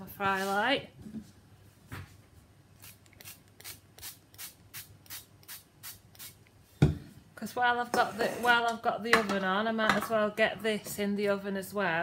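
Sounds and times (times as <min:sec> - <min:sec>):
spray bottle squirting: 0:02.8 - 0:06.4.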